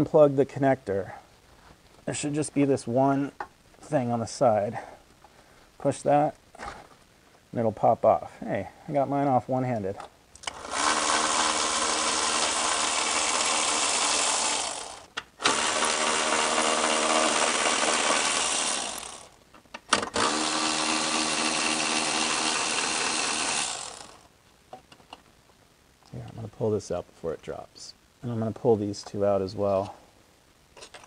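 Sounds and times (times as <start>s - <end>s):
electric ratchet running: 10.4s - 19.4s, 20.0s - 24.2s.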